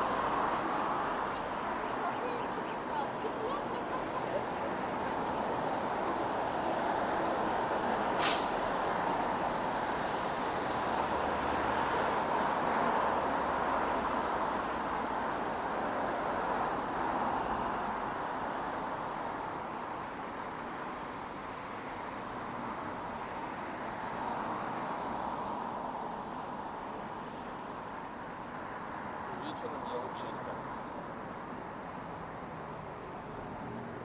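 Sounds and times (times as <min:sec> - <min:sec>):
city street traffic: 0:00.0 - 0:34.0
short sharp hiss: 0:08.1 - 0:08.8.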